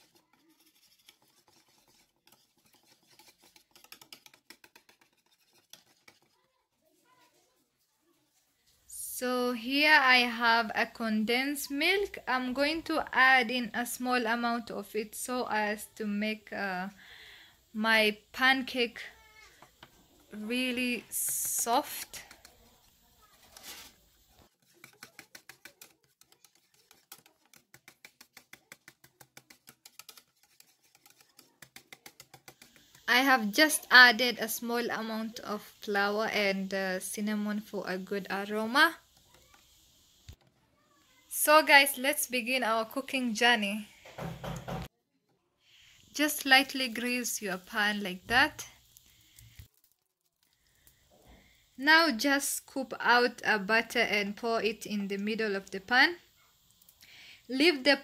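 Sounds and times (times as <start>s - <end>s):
whisk beating batter in bowl: 0.0s - 7.1s, 20.5s - 34.2s.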